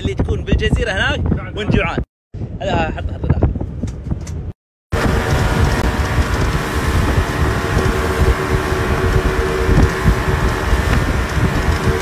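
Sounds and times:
wind buffeting the microphone: 0.0s - 12.0s
motorboat engine drone: 4.9s - 12.0s.

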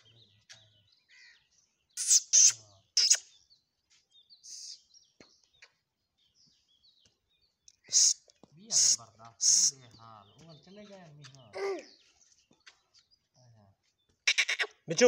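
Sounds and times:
small birds chirping: 0.0s - 15.0s
loud hissing bursts: 2.0s - 3.2s, 7.9s - 8.2s.

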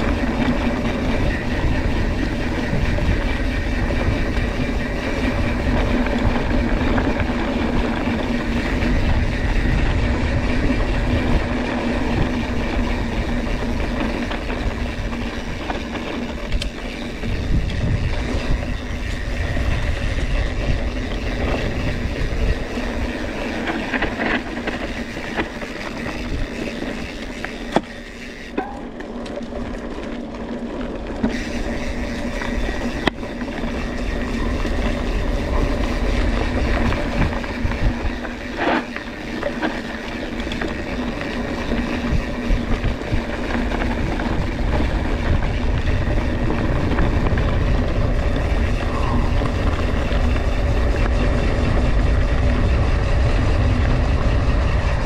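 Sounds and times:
bike rattling: 0.0s - 55.0s
bike tyres rumbling on trail: 0.0s - 55.0s.

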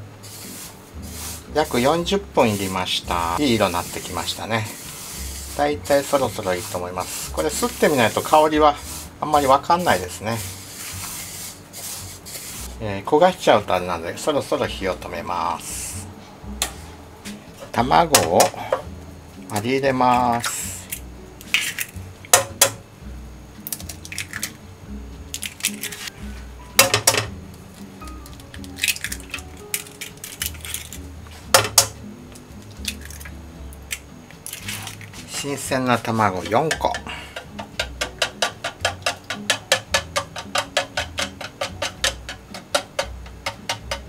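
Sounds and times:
soft background music: 0.0s - 44.0s
eggshells cracking against pan: 20.2s - 22.8s, 23.6s - 24.6s, 25.3s - 26.1s, 28.0s - 35.6s, 36.4s - 44.0s
chopsticks clicking against plastic jug: 36.4s - 44.0s.

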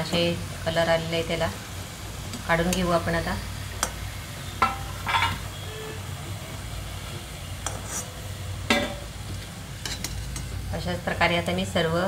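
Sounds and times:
faint oil sizzle: 0.0s - 12.0s
metal spoon scraping metal pan: 4.6s - 5.6s, 7.6s - 9.0s, 9.8s - 10.5s.

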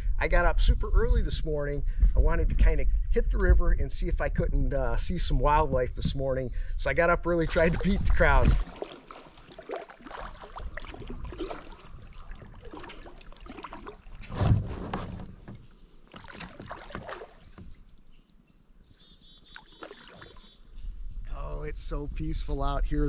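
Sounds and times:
paddle splashing and dripping: 7.2s - 20.9s
thump on kayak hull: 12.4s - 17.8s.

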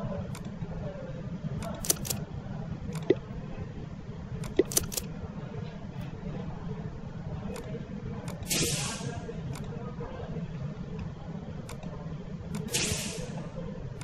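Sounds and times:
computer mouse clicking: 1.6s - 2.2s, 2.9s - 3.2s, 4.4s - 5.1s, 7.5s - 8.7s, 11.6s - 11.9s, 12.5s - 13.2s.

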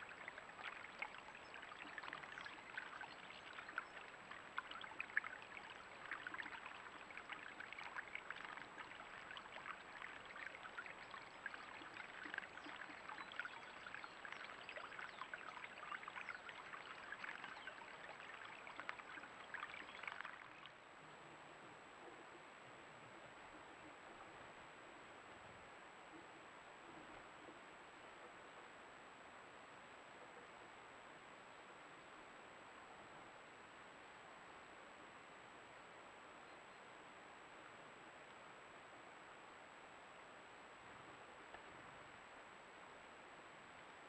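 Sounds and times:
small splashes and drips: 0.0s - 20.8s
stream trickling over stones: 0.0s - 20.8s.

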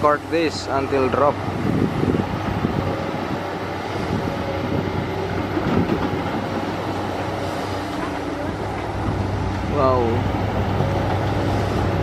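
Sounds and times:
excavator engines droning: 0.0s - 12.0s.

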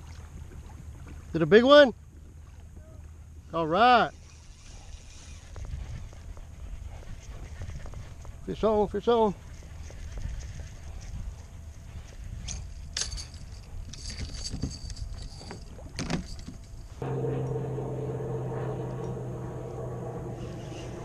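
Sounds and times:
low mechanical hum: 4.1s - 21.0s
low rumble: 16.9s - 21.0s.

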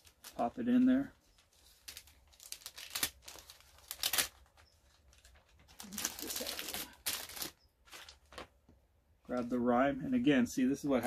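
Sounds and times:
plastic bag crinkling: 0.0s - 8.5s.

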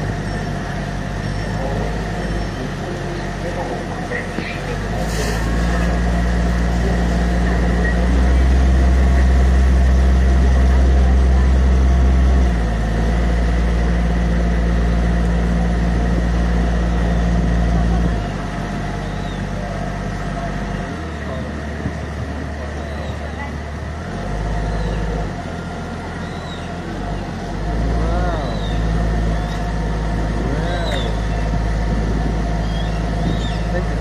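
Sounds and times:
boat motor humming: 0.0s - 34.0s.

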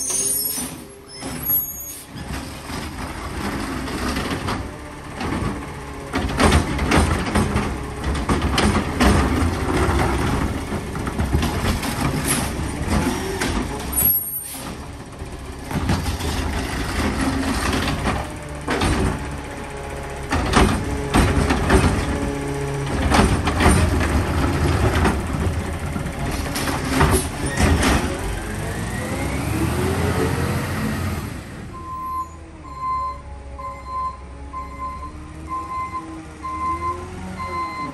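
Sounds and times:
air brake hisses: 0.0s - 0.9s
clanks and bangs: 0.0s - 14.9s, 15.6s - 19.4s, 20.3s - 28.4s
garbage truck engine running: 0.0s - 37.9s.

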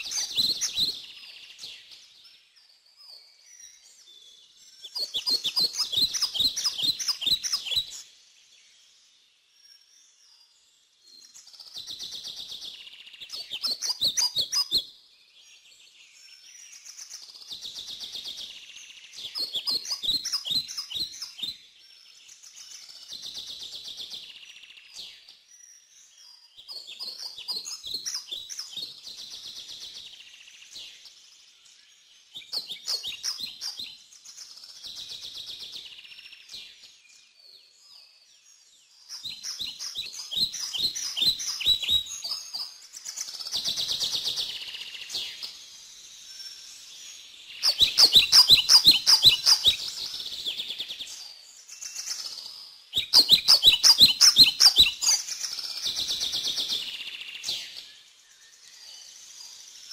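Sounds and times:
birds chirping: 0.0s - 2.2s, 4.8s - 8.1s, 18.5s - 22.7s, 38.9s - 58.2s
buzzy bird trills: 47.6s - 50.0s.

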